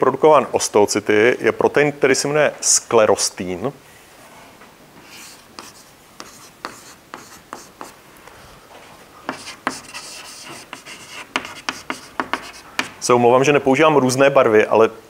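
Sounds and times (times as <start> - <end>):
chalk scraping on blackboard: 5.0 - 8.0, 9.3 - 13.0.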